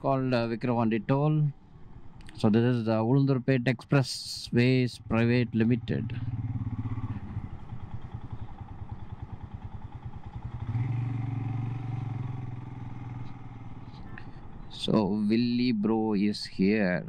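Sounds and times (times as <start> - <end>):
motorcycle engine running: 4.1 - 15.7.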